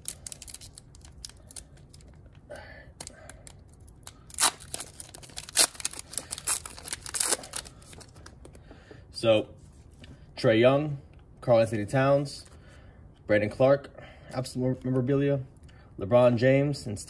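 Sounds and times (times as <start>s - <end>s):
foil wrapper ripping: 0.0s - 2.0s, 4.0s - 8.1s
foil wrapper crinkling: 0.0s - 2.2s, 3.0s - 8.3s.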